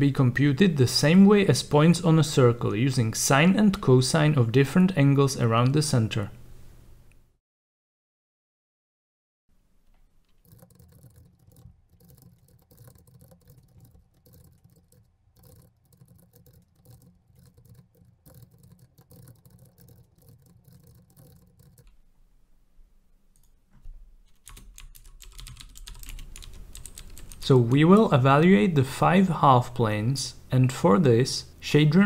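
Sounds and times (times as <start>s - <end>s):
fast typing on keyboard: 10.3s - 21.9s, 24.3s - 28.1s.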